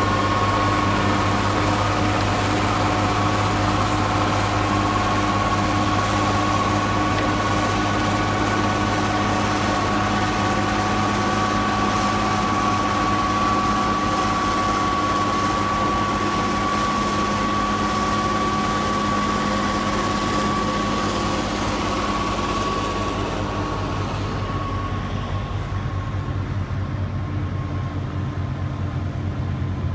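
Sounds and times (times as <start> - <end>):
snow blower whine: 0.0 - 29.9
tractor diesel engine: 0.0 - 29.9.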